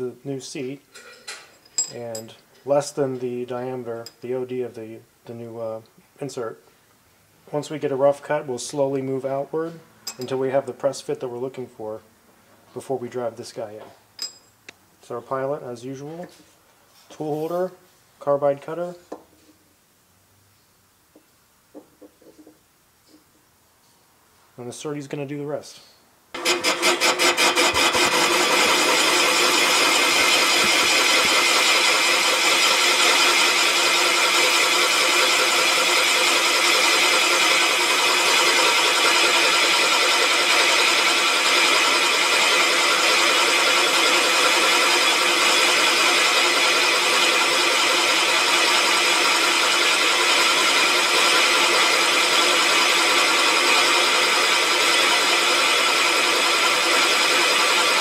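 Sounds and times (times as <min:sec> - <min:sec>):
machine spindle whine: 0:26.4 - 0:58.0.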